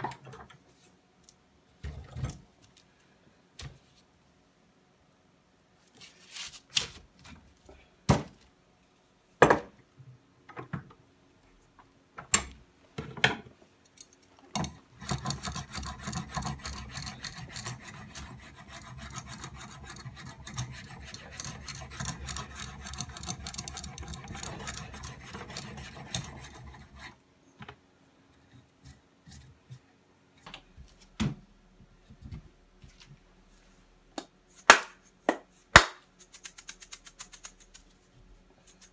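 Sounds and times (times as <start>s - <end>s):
knife scraping wood: 14.6s - 27.2s.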